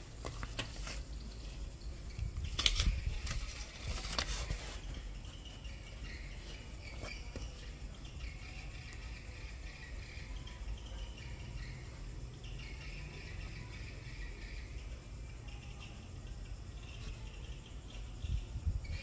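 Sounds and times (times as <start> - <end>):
paper crackling and tapping: 0.0 - 1.5, 2.4 - 5.1.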